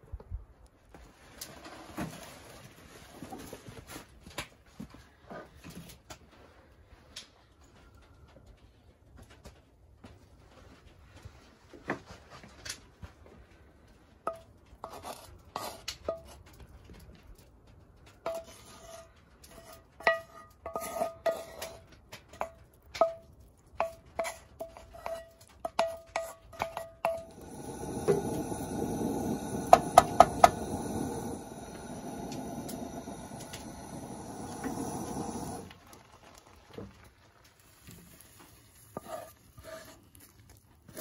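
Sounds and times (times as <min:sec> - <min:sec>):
wooden spatula scraping skillet: 0:14.3 - 0:16.4, 0:18.2 - 0:23.2, 0:23.8 - 0:41.0.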